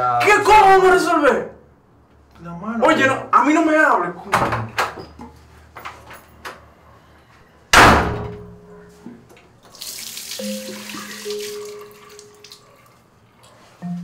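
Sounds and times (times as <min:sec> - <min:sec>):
door slamming: 0:07.7 - 0:08.5
tap running into washbasin: 0:09.6 - 0:12.6.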